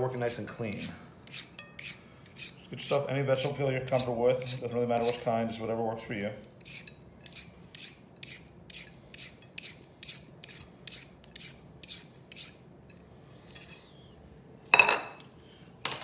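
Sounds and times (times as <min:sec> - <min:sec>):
peeler scraping a carrot: 0:00.6 - 0:05.4, 0:06.6 - 0:12.6.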